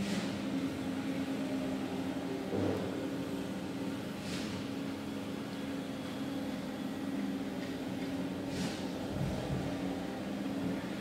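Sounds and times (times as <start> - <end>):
heavy truck engines droning: 0.0 - 11.0.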